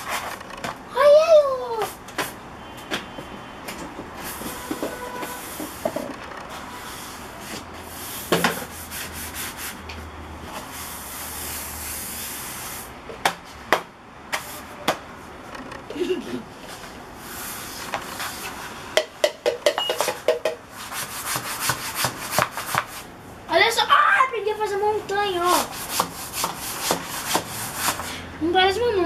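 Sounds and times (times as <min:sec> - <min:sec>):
brush scrubbing paint on paper: 0:20.7 - 0:23.1, 0:25.4 - 0:28.1.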